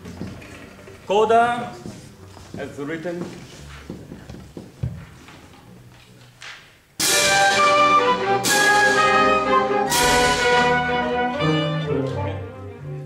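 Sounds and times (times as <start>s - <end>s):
orchestra violins sustained chords: 7.0s - 13.0s.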